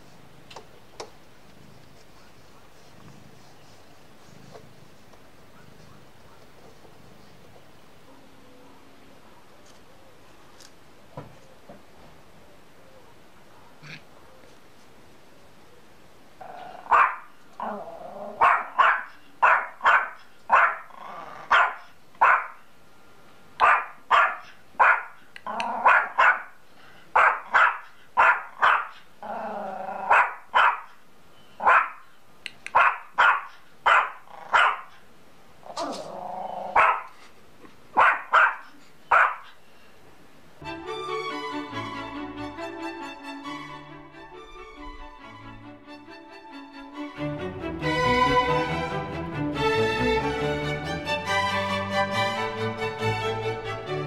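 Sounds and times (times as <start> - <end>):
dog growling: 2.7 - 7.6, 17.6 - 18.8, 20.8 - 21.6, 25.4 - 25.9, 29.2 - 30.2, 35.6 - 36.8
small dog barking sharply: 16.9 - 17.3, 18.4 - 20.8, 21.5 - 22.6, 23.6 - 25.1, 25.8 - 26.5, 27.2 - 29.0, 30.1 - 30.9, 31.6 - 32.0, 32.7 - 34.9, 36.8 - 37.1, 38.0 - 39.5.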